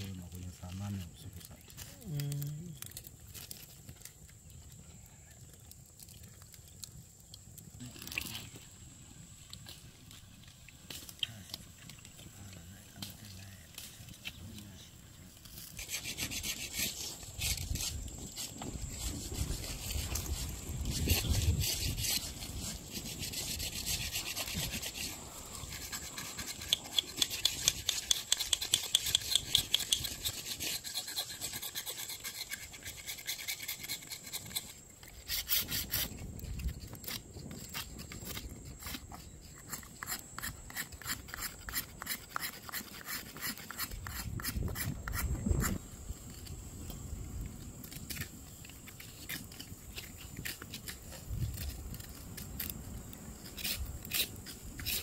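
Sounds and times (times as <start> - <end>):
scraping and rubbing strokes: 9.4 - 47.1, 47.8 - 55.0
sharp evenly spaced strokes: 15.5 - 36.1.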